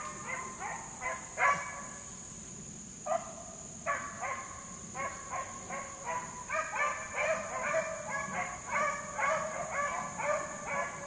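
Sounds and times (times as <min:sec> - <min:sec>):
hounds baying: 0:05.0 - 0:11.0.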